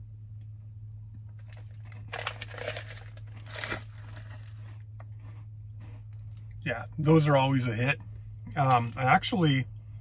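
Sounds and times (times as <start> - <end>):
steady low hum: 0.0 - 10.0
plastic wrapper crinkling: 1.4 - 4.8.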